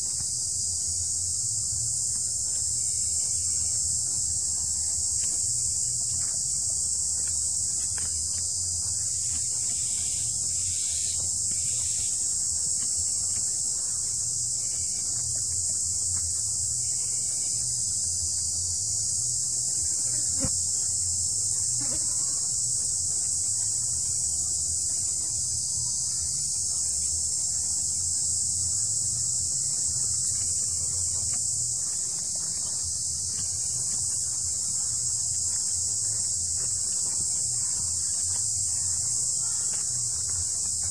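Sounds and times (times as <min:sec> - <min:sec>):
insect chorus drone: 0:00.0 - 0:40.9.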